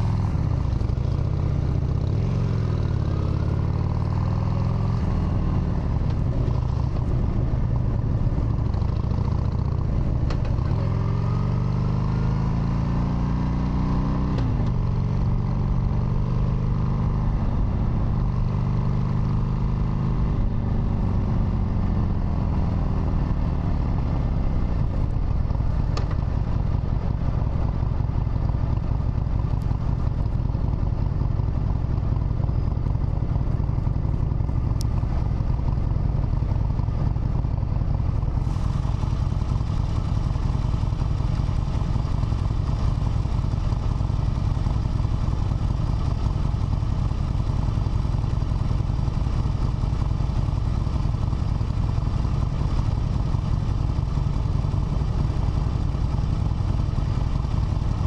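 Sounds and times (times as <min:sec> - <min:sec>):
motorcycle engine revving: 0:00.0 - 0:25.8.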